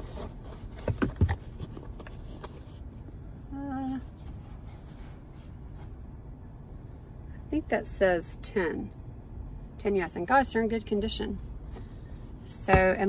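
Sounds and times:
shoe box knocks and rustles: 0.0 - 2.1, 12.6 - 13.0.

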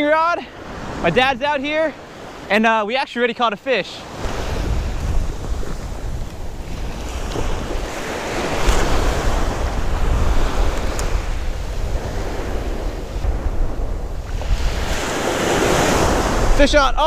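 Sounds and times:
surf waves on sandy shore: 0.0 - 17.0
wind rumbling on microphone: 4.1 - 17.0.

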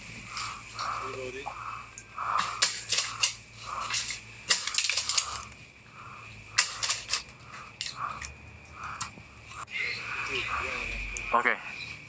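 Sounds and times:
leaves and stems rustling: 0.0 - 5.8.

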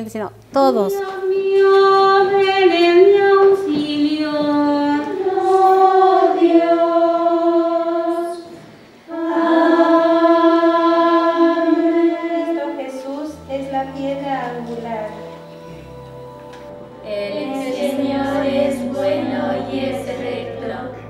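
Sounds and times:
women's choir singing unaccompanied: 0.9 - 21.0.

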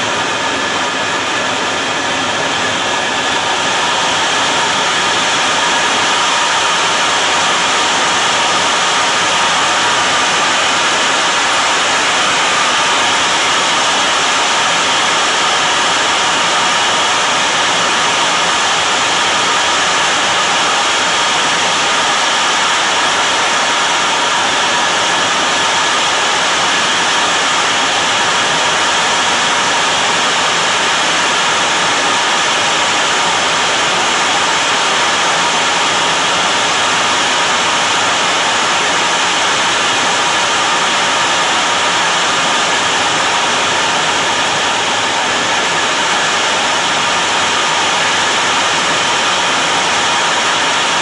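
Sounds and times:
jet engine and airflow rushing: 0.0 - 31.2.

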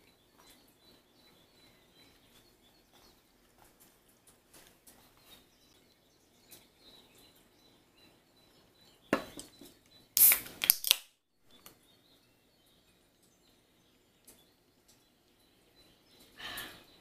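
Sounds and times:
can cracking open and fizzing: 10.2 - 11.2.

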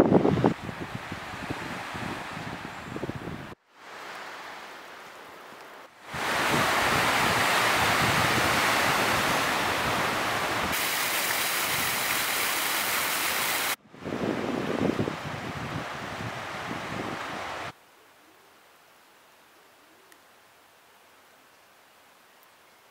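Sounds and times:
wind and water rushing: 0.0 - 17.8
surf breaking over rocks: 6.1 - 13.8
waterfall spilling down rock: 10.7 - 13.8.

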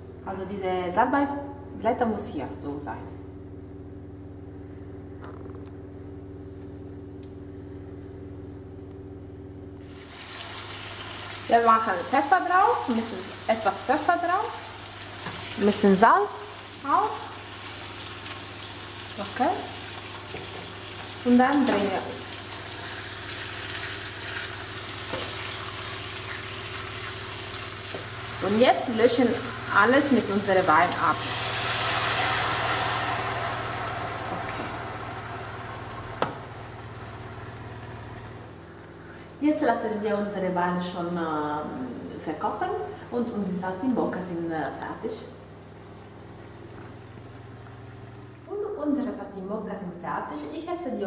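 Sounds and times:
induction hob humming: 0.0 - 51.0
meat sizzling in a pan: 9.8 - 38.2.

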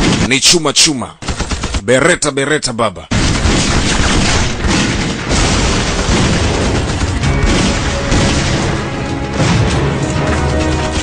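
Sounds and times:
gunfire: 0.0 - 0.6, 3.1 - 11.0
explosions: 3.1 - 11.0
dramatic music score: 6.0 - 11.0.

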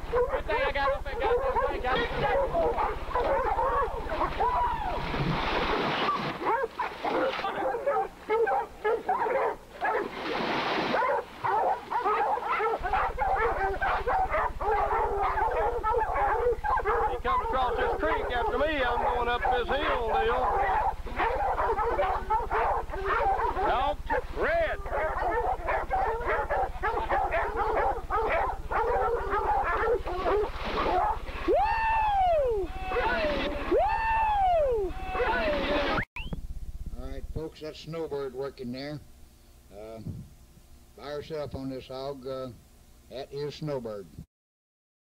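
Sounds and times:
steady low hum: 0.0 - 5.8, 11.0 - 44.2
dogs barking and yelping: 0.0 - 10.2, 10.8 - 36.0.

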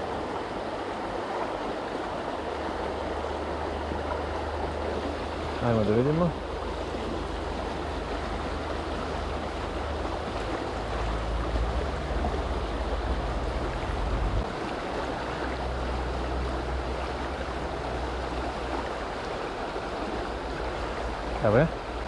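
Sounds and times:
river water rushing: 0.0 - 22.0
low rumble: 10.7 - 14.7.

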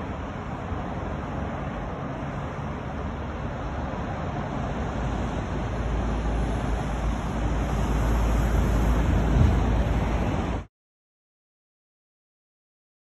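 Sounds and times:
city road traffic: 0.0 - 10.7
wind buffeting microphone: 4.8 - 10.6.

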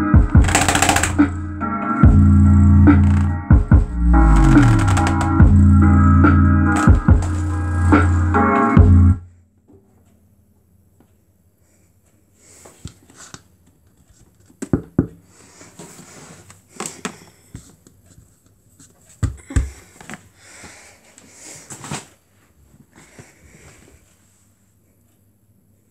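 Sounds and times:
rustling and scraping by hand: 15.3 - 19.2, 21.0 - 24.7.

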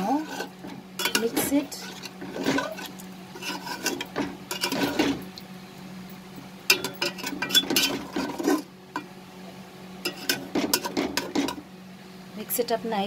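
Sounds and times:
metal spatula scraping metal pot: 0.0 - 5.2, 6.7 - 8.7, 10.1 - 11.6.

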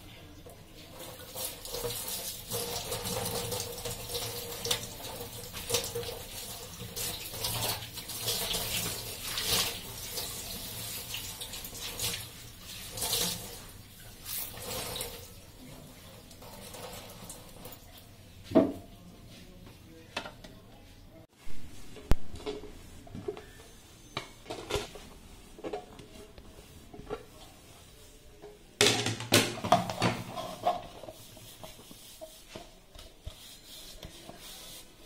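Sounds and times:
cloth rubbed and rinsed: 0.0 - 20.1, 20.7 - 24.1, 24.7 - 28.8, 29.9 - 35.0
tap water splashing into sink: 1.0 - 10.3.

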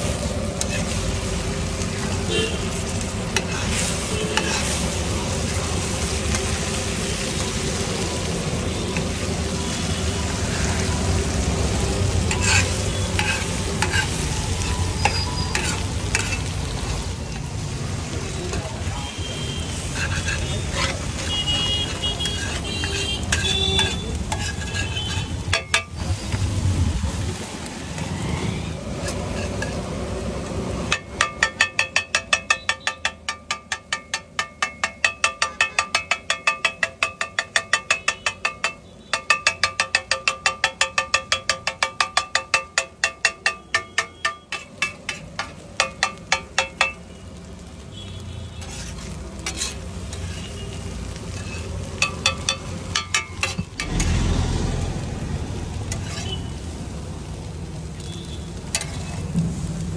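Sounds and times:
spatula scraping iron griddle: 0.1 - 17.6, 19.5 - 26.3, 28.0 - 30.1, 30.8 - 47.0, 48.5 - 54.3, 55.6 - 56.6, 58.6 - 59.4
spatula chopping on griddle: 3.3 - 4.9, 12.2 - 16.5, 19.7 - 26.0, 30.9 - 47.2, 48.6 - 50.5, 51.2 - 54.0, 55.9 - 56.4.

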